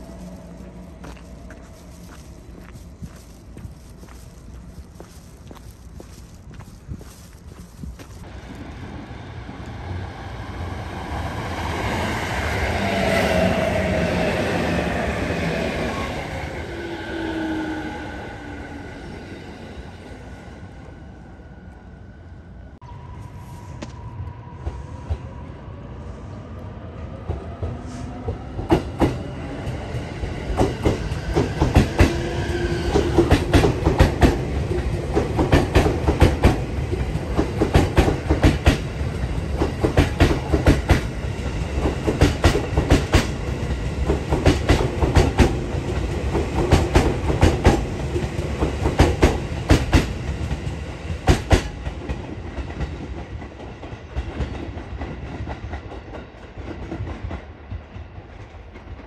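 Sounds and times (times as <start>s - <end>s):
train wheels clattering over rail joints: 41.7s - 50.2s.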